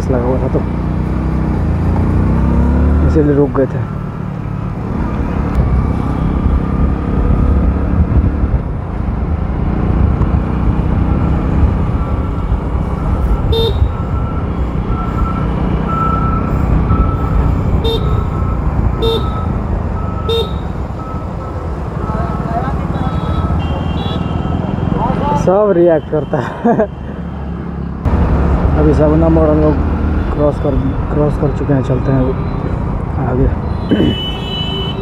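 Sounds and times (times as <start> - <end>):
road rumble: 0.0 - 35.0
motorcycle horn toots: 13.4 - 14.1, 17.8 - 18.3, 19.0 - 19.5, 20.2 - 20.7, 22.8 - 24.5, 33.6 - 35.0.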